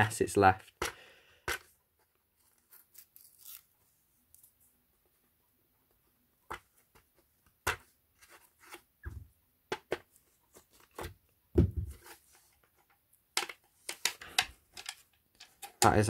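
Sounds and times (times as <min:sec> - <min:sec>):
heavy thump: 0:11.6 - 0:12.0.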